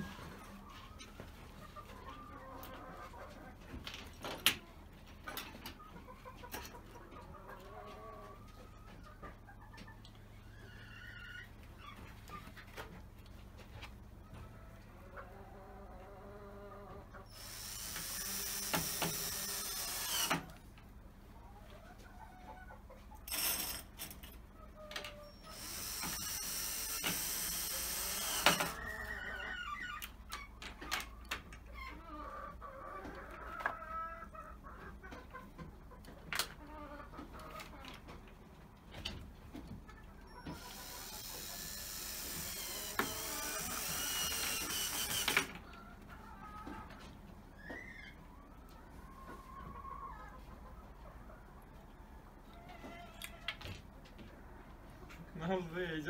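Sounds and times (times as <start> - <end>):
chickens clucking: 0.0 - 17.4, 20.3 - 26.2, 28.3 - 41.6, 45.3 - 56.0
cordless drill driving screws: 17.4 - 20.5, 25.5 - 28.9, 40.5 - 45.6.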